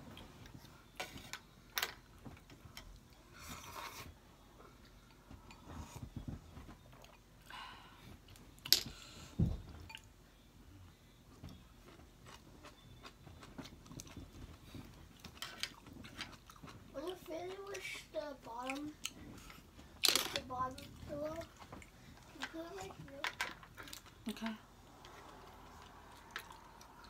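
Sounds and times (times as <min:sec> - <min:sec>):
people chewing and biting: 0:11.5 - 0:17.3.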